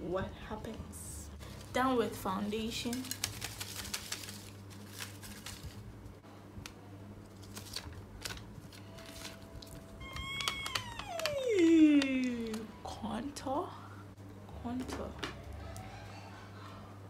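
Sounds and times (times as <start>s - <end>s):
paper crackling and rustling: 1.4s - 6.2s, 7.2s - 11.4s.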